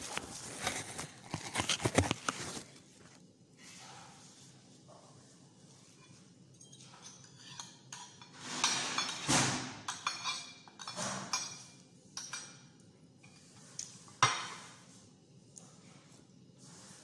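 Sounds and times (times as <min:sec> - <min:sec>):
cutlery scraping and clinking on plate: 0:05.8 - 0:14.8.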